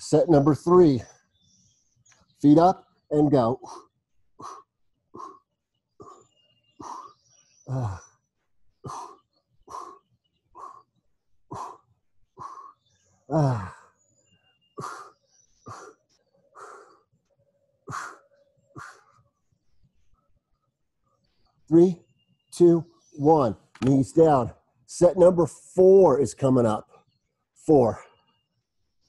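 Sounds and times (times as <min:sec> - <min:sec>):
faint bird chirps: 0:00.0 - 0:29.0
man grunting: 0:07.7 - 0:08.0, 0:13.3 - 0:13.8.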